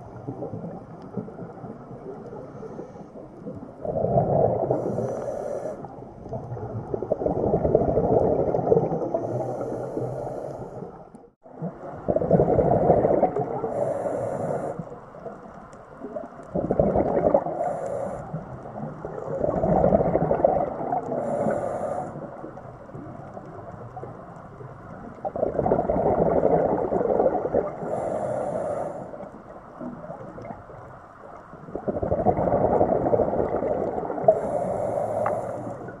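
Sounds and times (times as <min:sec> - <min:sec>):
diver exhaling bubbles underwater: 0:03.4 - 0:05.2, 0:06.2 - 0:09.7, 0:11.5 - 0:13.8, 0:16.1 - 0:17.7, 0:18.6 - 0:21.6, 0:25.2 - 0:28.0, 0:31.6 - 0:36.0.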